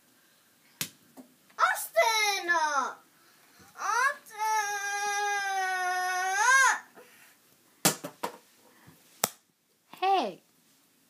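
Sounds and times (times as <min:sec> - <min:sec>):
child wailing: 0:03.8 - 0:07.0.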